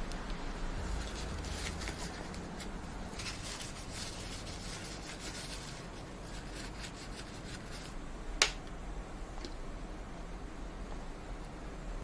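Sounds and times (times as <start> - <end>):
tissue rubbing: 0.8 - 8.0.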